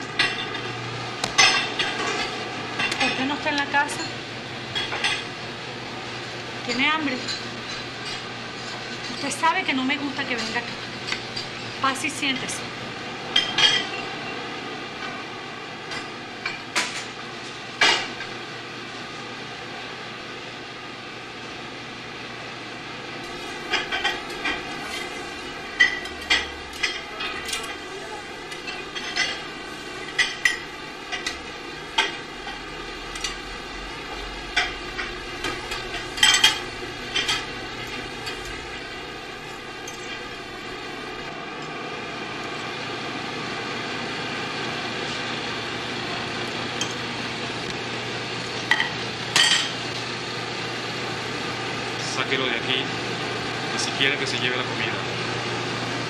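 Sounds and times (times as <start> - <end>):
steady background hum: 0.0 - 56.0
dishes and utensils clinking: 23.3 - 41.2, 48.7 - 49.8.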